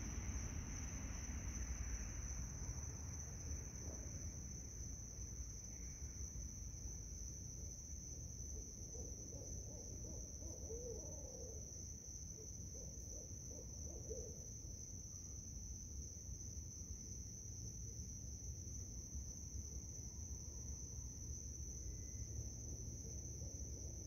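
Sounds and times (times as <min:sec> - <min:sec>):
high insect trill: 0:00.0 - 0:24.0
distant owl hooting: 0:09.0 - 0:11.6.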